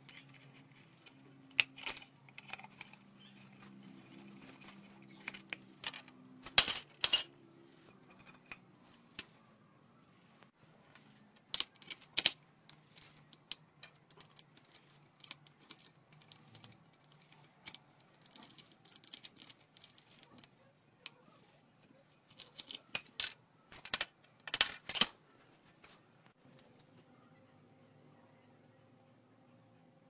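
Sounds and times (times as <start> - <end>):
metal parts and tools clinking: 0.0 - 9.4, 10.8 - 25.2.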